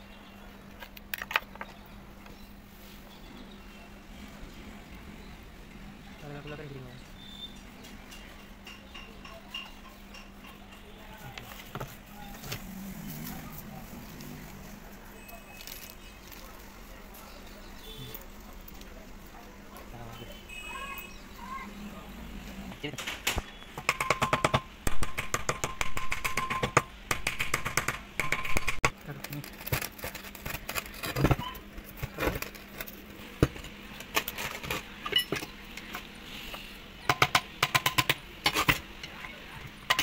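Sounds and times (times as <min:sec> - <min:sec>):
steady low hum: 0:09.9 - 0:20.5
hammer tapping on metal cover: 0:23.8 - 0:28.8.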